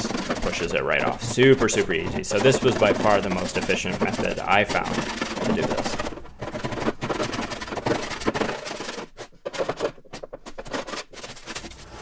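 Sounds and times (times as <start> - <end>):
scraper scraping metal floor: 0.0 - 12.0.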